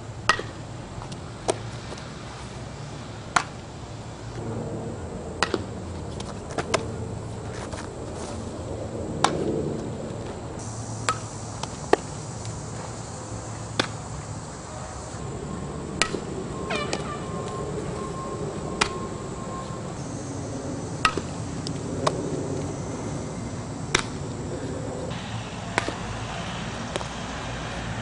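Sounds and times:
softball hitting bat: 0:00.3 - 0:00.6, 0:03.3 - 0:03.6, 0:05.4 - 0:07.0, 0:09.2 - 0:09.5, 0:11.0 - 0:13.0, 0:13.6 - 0:14.1, 0:16.0 - 0:17.2, 0:18.8 - 0:19.0, 0:20.9 - 0:22.2, 0:23.9 - 0:24.2, 0:25.5 - 0:27.2
faint high buzz: 0:10.6 - 0:28.0.

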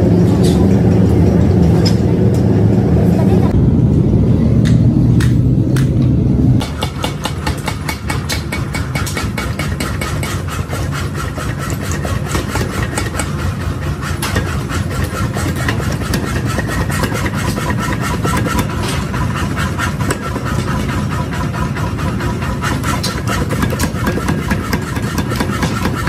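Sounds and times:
power hammer pounding metal: 0:06.6 - 0:26.0.

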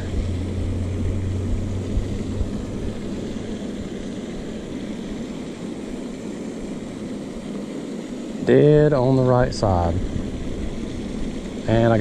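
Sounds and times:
low rumble: 0:00.0 - 0:05.3
steady outdoor rushing noise: 0:00.0 - 0:12.0.

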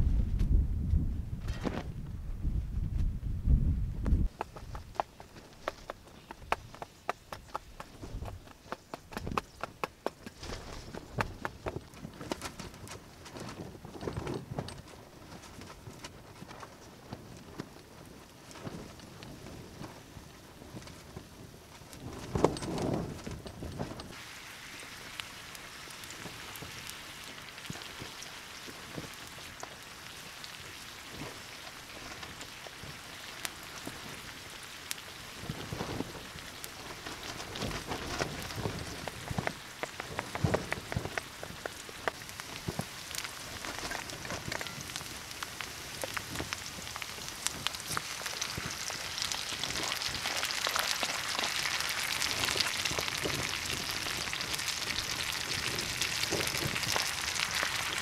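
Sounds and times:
food sizzling in a pan: 0:24.1 - 0:37.6, 0:38.4 - 0:58.0.

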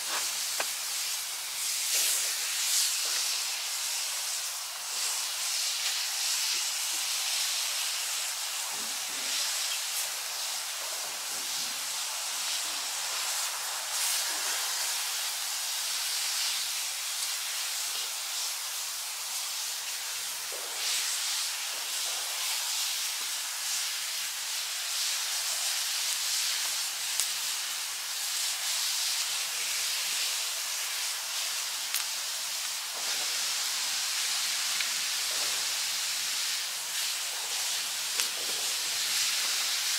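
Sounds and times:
burning wood snapping: 0:00.0 - 0:00.8, 0:31.9 - 0:32.8, 0:38.1 - 0:38.6
food sizzling in skillets: 0:00.0 - 0:39.9.

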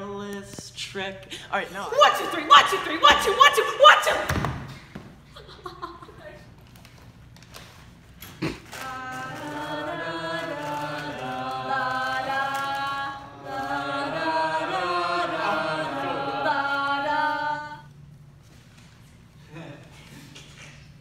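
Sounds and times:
group singing a cappella: 0:08.7 - 0:17.9.

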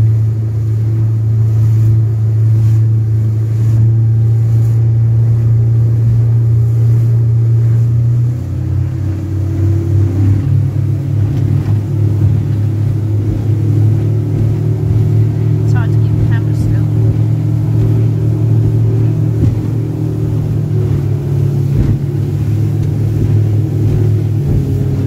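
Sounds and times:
motorboat engine droning: 0:00.0 - 0:25.0.

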